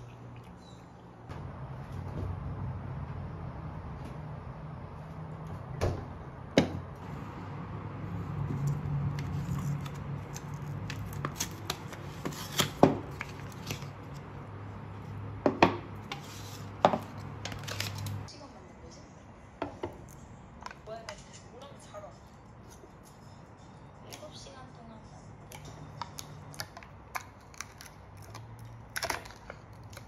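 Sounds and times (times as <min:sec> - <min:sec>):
paper tearing and crinkling: 0:09.1 - 0:14.1, 0:16.2 - 0:18.3.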